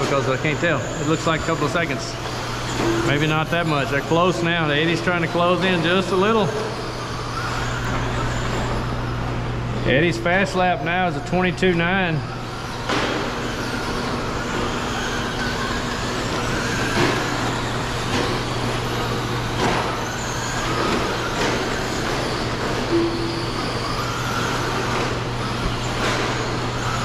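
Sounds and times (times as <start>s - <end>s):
electric motor whine: 0.0s - 27.0s
steady low hum: 15.3s - 27.0s.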